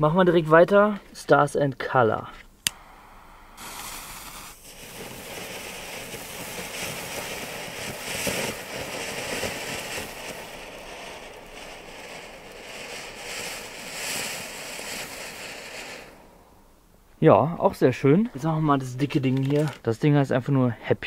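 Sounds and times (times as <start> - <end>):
gas torch lighter: 2.6 - 16.4
firework sparks rushing hiss: 2.6 - 16.8.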